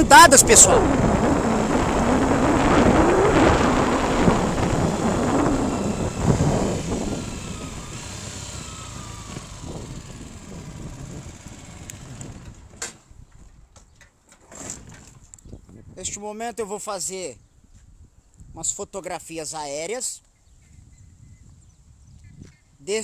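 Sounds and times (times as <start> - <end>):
vehicle engine driving off: 0.8 - 12.8.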